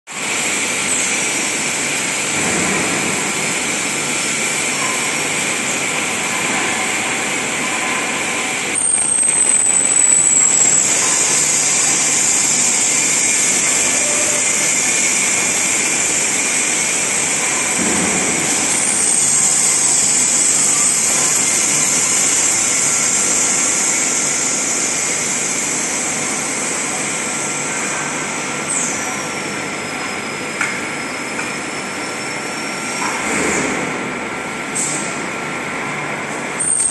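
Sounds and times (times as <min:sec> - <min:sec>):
machine hum: 0:00.2 - 0:36.5
loud high hiss: 0:08.5 - 0:28.9
short falling high whistle: 0:08.8 - 0:11.3.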